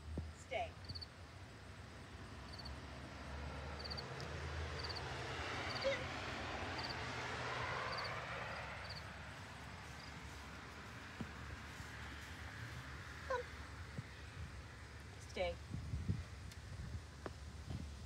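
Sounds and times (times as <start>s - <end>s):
cricket chirping: 0.8s - 6.0s, 6.7s - 7.1s, 7.7s - 10.4s
passing car: 1.7s - 15.4s.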